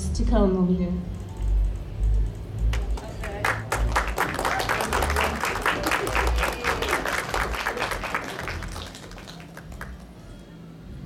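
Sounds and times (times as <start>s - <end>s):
crowd applauding: 2.6s - 10.4s.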